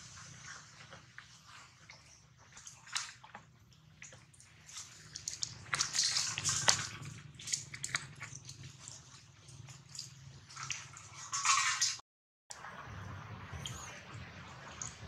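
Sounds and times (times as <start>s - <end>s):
water sloshing in bottle: 0.0s - 12.0s.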